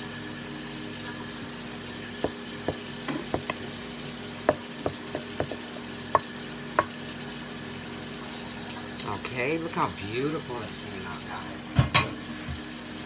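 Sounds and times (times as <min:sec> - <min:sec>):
faint pan sizzle: 0:00.0 - 0:09.1
spatula scraping a skillet: 0:04.5 - 0:06.9.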